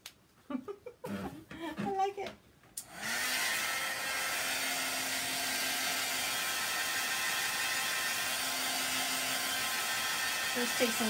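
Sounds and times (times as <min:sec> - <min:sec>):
hair dryer blowing: 0:02.8 - 0:11.0.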